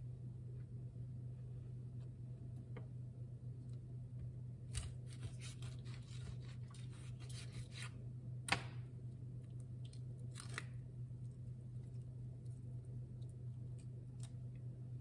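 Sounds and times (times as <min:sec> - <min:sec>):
knife cutting avocado skin: 0:04.6 - 0:08.8
avocado twisted apart crackle: 0:09.8 - 0:10.9.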